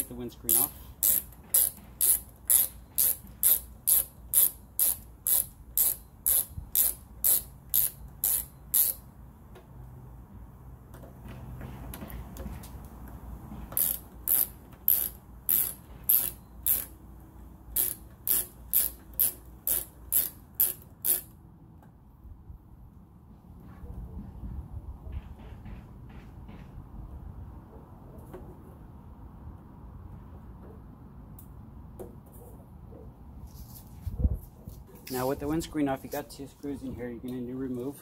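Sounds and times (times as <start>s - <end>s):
ratchet driver clicking: 0.5s - 9.1s, 13.7s - 17.0s, 17.7s - 21.4s.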